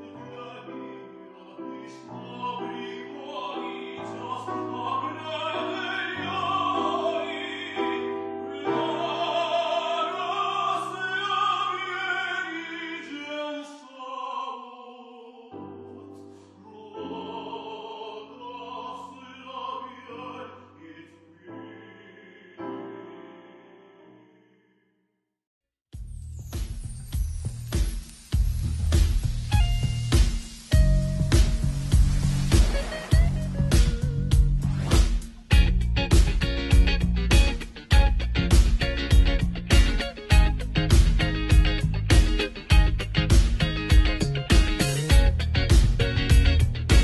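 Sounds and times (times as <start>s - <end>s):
operatic solo singing: 0.0s - 23.7s.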